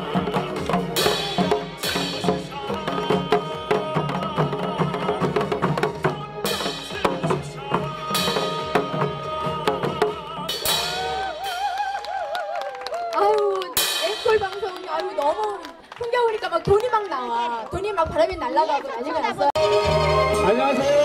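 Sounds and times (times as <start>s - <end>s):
melodic music: 19.6s - 21.0s.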